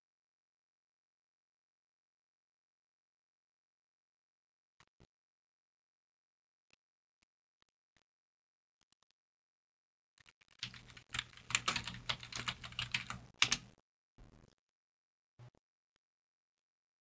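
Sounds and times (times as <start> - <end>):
typing on computer keyboard: 10.6 - 13.7.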